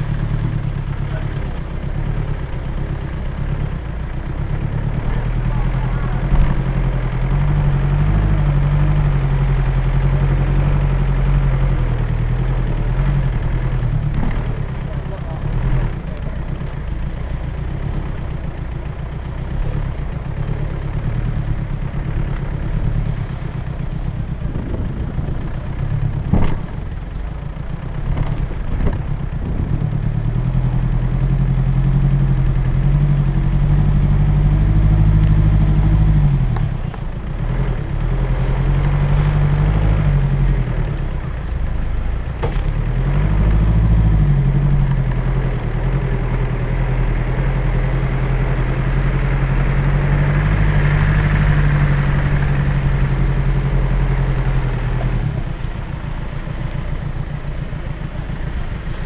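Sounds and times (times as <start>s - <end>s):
car engine revving: 0.0s - 59.0s.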